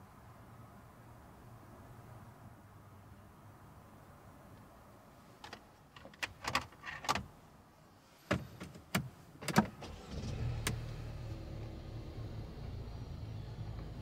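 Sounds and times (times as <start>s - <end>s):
car engine rumbling: 8.5s - 14.0s.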